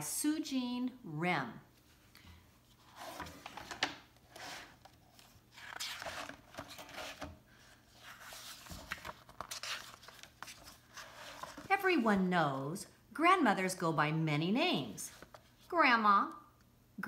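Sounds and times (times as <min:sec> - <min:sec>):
book pages turning: 0:02.7 - 0:11.8, 0:15.1 - 0:15.7.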